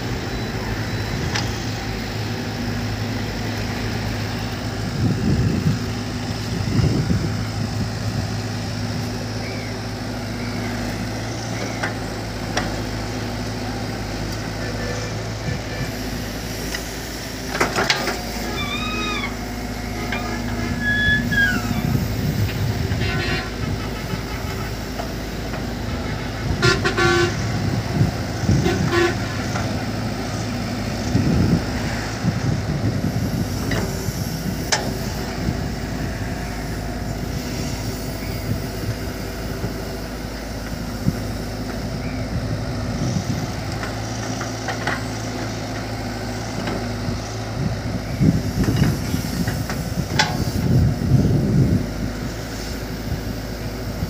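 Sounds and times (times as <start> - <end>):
excavator diesel engine running: 0.0 - 54.0
vehicle horn toots: 22.9 - 24.6, 26.1 - 27.7, 28.5 - 29.5.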